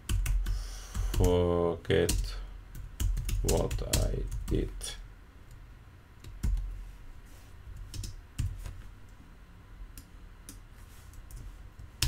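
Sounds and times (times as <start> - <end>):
computer keyboard typing: 0.0 - 1.4, 2.1 - 4.6, 6.2 - 6.7, 7.8 - 8.6.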